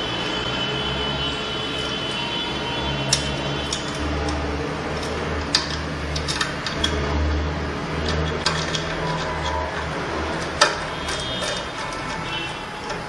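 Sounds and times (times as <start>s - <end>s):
metal clicks and taps: 3.1s - 7.0s, 8.0s - 13.0s.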